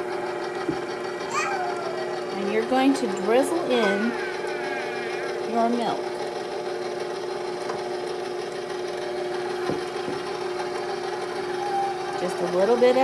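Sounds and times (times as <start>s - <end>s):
stand mixer motor humming: 0.0s - 13.0s.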